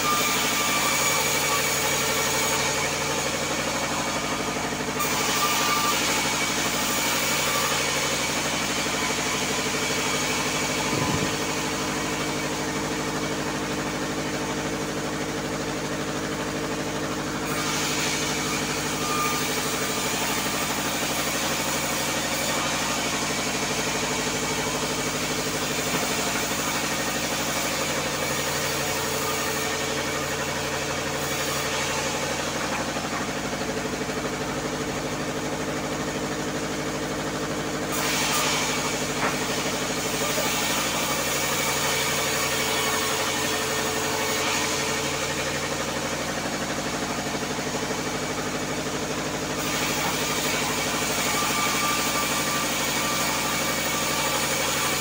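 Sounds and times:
saw blade ripping wood: 0:00.0 - 0:55.0
saw motor drone: 0:00.0 - 0:55.0.

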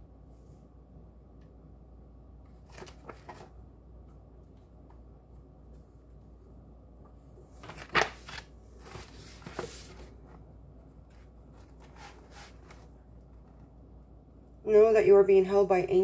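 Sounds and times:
crisp rustling and handling: 0:02.4 - 0:03.6, 0:07.4 - 0:13.7.

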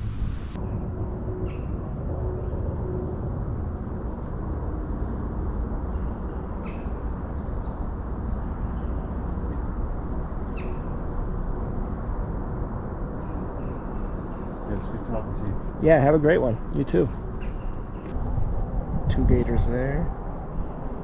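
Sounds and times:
steady low rumble: 0:00.0 - 0:21.0
bird calls: 0:05.9 - 0:09.1, 0:10.5 - 0:11.0, 0:13.2 - 0:18.1.

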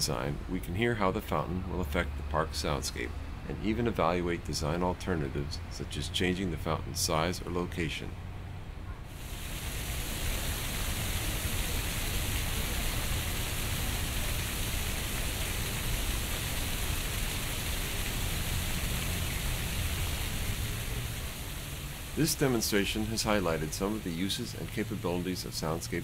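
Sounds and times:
fountain water splashing: 0:09.1 - 0:26.0.

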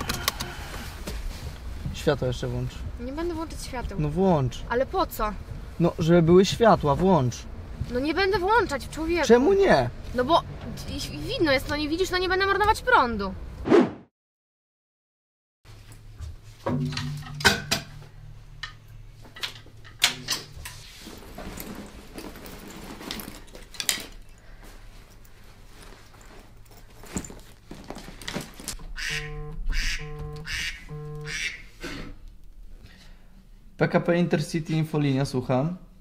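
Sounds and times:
clothes and bag rustling: 0:00.5 - 0:10.3, 0:19.2 - 0:28.9
knocks and clatters of handling: 0:15.8 - 0:29.0
phone ringing: 0:29.1 - 0:31.4.

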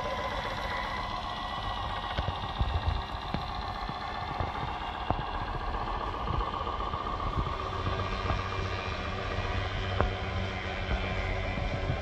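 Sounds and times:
low hum: 0:00.0 - 0:12.0
toy truck motor whine: 0:00.0 - 0:12.0.

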